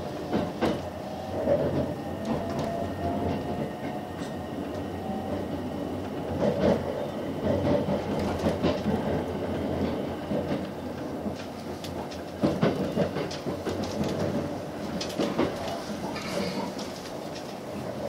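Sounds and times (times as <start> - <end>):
train cabin low rumble: 0.0 - 18.0
wheels clacking over track: 6.2 - 18.0.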